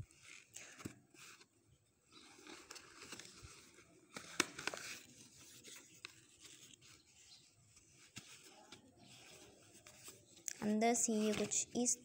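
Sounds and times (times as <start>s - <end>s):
cardboard rustling and scraping: 0.1s - 11.9s.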